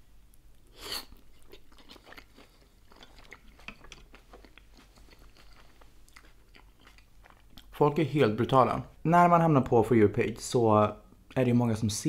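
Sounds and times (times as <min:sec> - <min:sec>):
biting into dumpling: 0:00.8 - 0:07.7
wet chewing clicks: 0:01.1 - 0:07.7.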